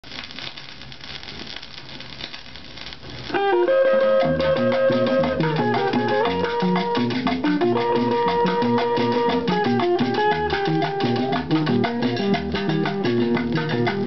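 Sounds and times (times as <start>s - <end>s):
vinyl record crackle and hiss: 0.0s - 14.0s
plucked guitar over bass: 3.4s - 14.0s.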